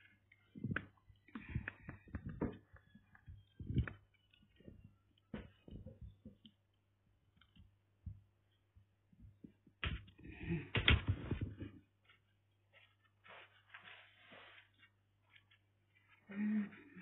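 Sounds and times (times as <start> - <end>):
crackling and rustling: 0.0 - 8.3, 9.2 - 16.2
soft clicks and knocks: 0.5 - 6.6.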